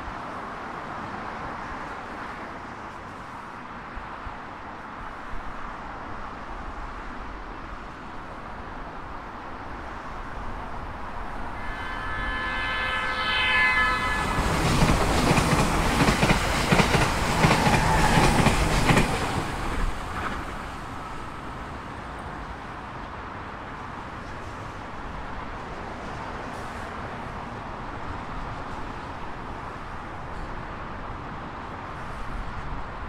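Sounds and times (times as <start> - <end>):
train rumble: 0.0 - 33.0
train horn: 11.3 - 16.3.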